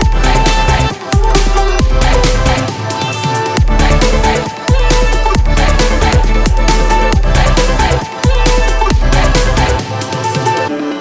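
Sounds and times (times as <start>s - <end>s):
deep bass kicks: 0.0s - 2.7s, 3.6s - 9.8s
electronic dance music: 0.0s - 11.0s.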